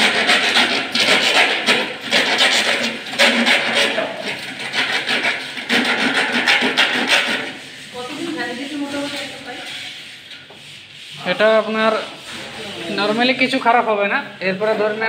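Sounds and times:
metal duct crinkling and rasping: 0.0s - 13.8s.

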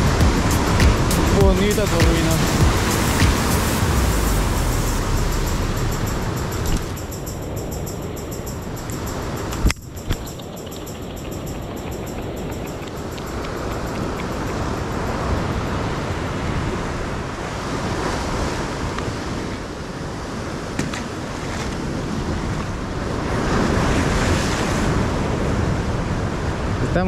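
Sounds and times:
ocean surf breaking: 0.0s - 27.0s.

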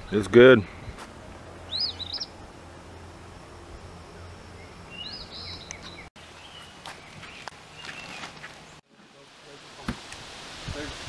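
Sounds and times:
low steady hum: 0.0s - 7.9s
songbird chirping: 0.0s - 8.8s.

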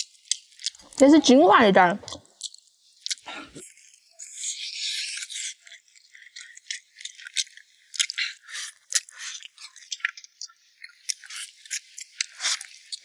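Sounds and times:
person chewing with wet smacks: 0.0s - 1.1s, 2.0s - 13.0s
crackling chewing clicks: 0.0s - 13.0s.

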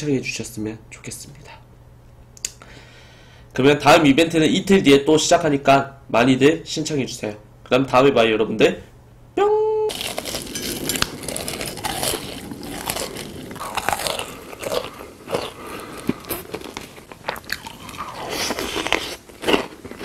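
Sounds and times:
chewing crunchy food: 9.9s - 20.0s.

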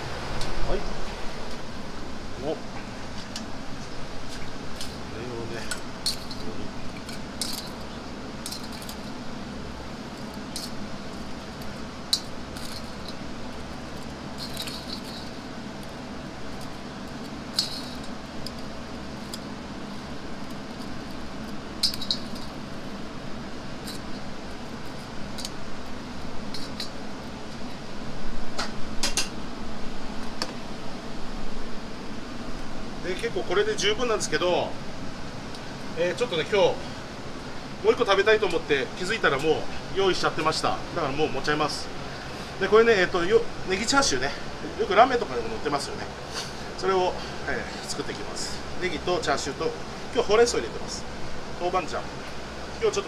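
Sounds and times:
steady low hum: 0.0s - 53.0s
metallic clinks and taps: 17.5s - 18.6s, 21.8s - 22.5s.

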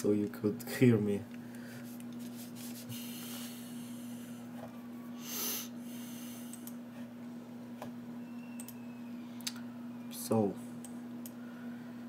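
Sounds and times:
steady background hum: 0.0s - 12.0s
soft rustle of headphones: 1.7s - 3.1s.

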